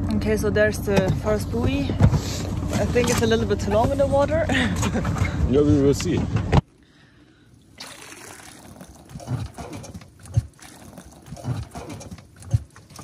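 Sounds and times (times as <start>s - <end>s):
water dribbling off crab trap: 7.6s - 13.0s.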